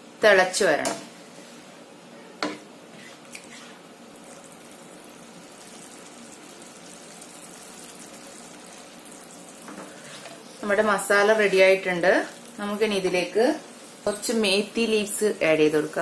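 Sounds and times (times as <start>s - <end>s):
curry bubbling in a pan: 3.1s - 15.1s.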